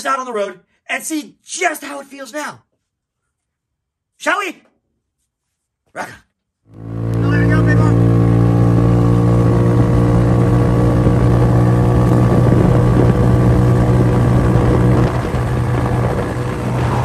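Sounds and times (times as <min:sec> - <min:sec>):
buggy engine running: 0:06.7 - 0:17.0.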